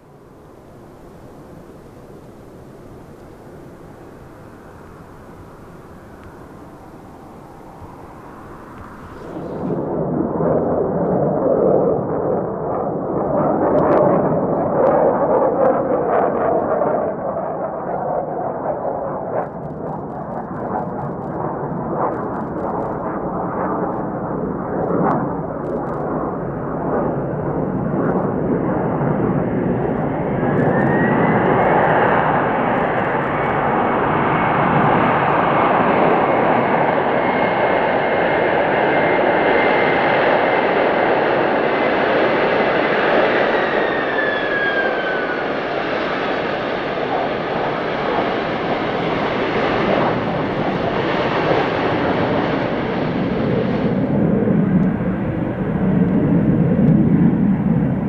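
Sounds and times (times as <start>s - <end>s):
rising engine whine: 0.0s - 13.1s, 24.8s - 58.0s
jet engines roaring: 0.0s - 58.0s.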